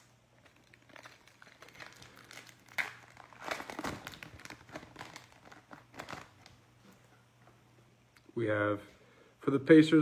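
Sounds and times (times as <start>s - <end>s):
card pack wrapper crinkling: 0.0s - 6.6s.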